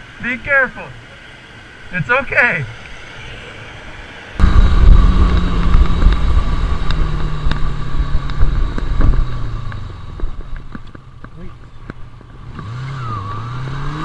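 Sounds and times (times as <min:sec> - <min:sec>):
wind noise on microphone: 0:04.4 - 0:13.4
motorcycle engine running: 0:04.4 - 0:14.0.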